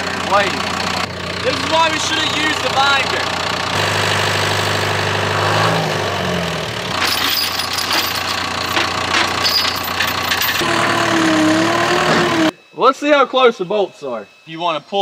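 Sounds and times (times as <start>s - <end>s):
diesel engine running: 0.0s - 12.5s
steel chain clinking: 7.0s - 10.6s.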